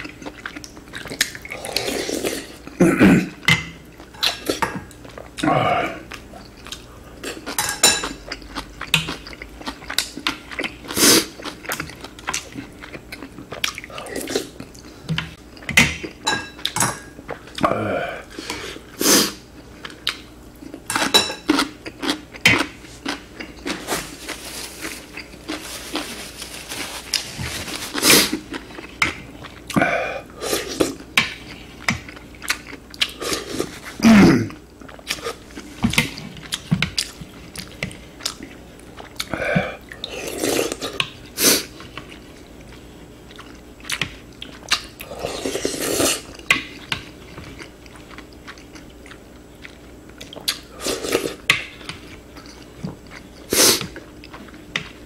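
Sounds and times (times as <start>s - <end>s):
chewing: 0.0s - 2.8s, 6.0s - 17.7s
slurping broth: 1.4s - 2.6s, 45.1s - 46.3s.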